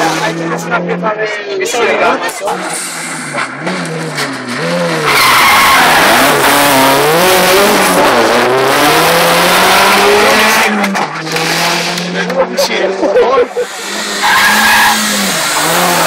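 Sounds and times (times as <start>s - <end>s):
rally car engine running: 2.3s - 16.0s
car tyres squealing: 2.5s - 12.2s, 13.5s - 16.0s.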